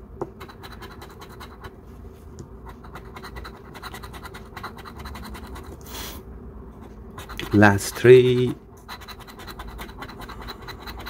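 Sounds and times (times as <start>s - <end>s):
coin scratching ticket: 0.4s - 1.7s, 2.7s - 5.7s, 7.2s - 11.0s.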